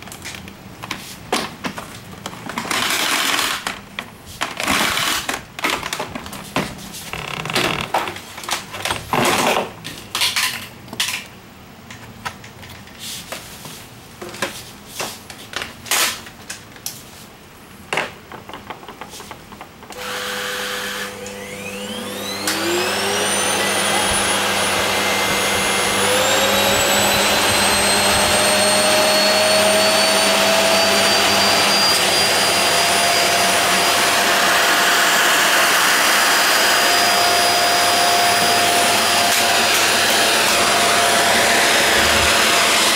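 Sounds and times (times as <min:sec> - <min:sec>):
electric motor whine: 0:20.0 - 0:42.9.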